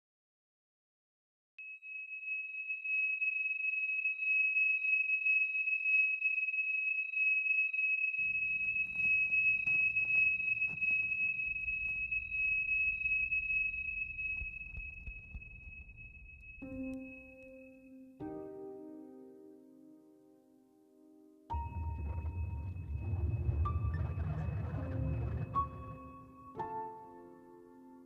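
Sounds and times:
high-pitched ringing tone: 1.6s - 18.5s, 21.5s - 26.9s
faint rustles and clicks: 8.2s - 16.7s.

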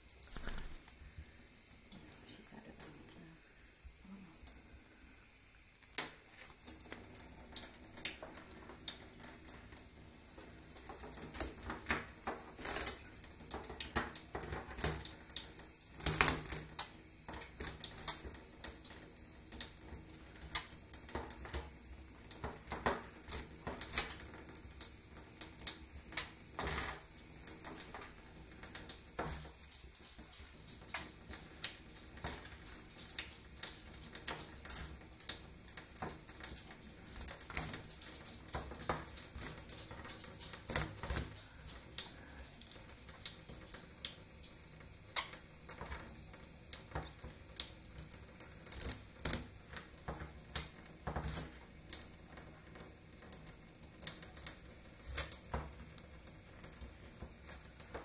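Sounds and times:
tap water running: 0.0s - 58.0s
splashes and clicks on steel: 45.1s - 46.1s.

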